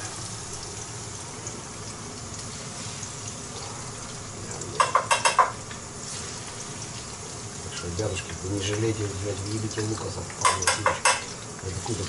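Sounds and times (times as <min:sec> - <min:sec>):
oil sizzling: 0:00.0 - 0:12.0
utensil clinking on cookware: 0:04.7 - 0:05.6, 0:10.3 - 0:11.5.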